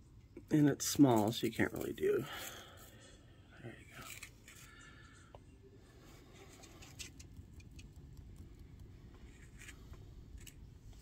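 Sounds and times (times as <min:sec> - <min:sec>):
low room hum: 0:00.0 - 0:11.0
faint clicks and taps: 0:06.6 - 0:11.0.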